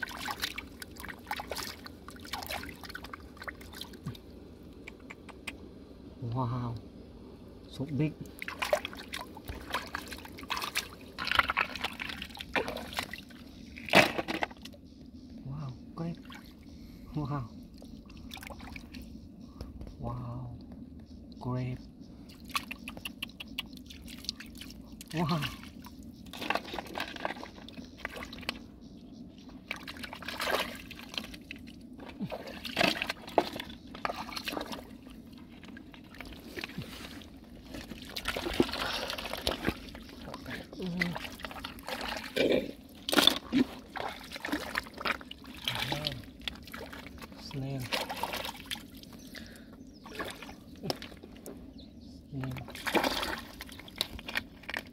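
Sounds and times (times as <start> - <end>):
shallow water sloshing: 0.0 - 4.2, 8.3 - 14.9, 17.7 - 19.1, 23.8 - 51.7, 52.4 - 54.9
hands splashing in muddy water: 37.9 - 49.0, 52.6 - 54.8.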